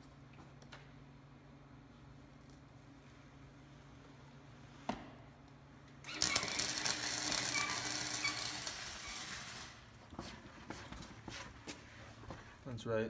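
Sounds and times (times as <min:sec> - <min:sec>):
arc welding crackling: 0:06.0 - 0:10.2.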